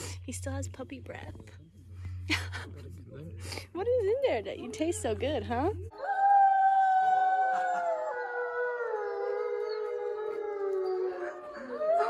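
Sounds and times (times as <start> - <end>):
wolves howling in chorus: 5.9 - 12.0.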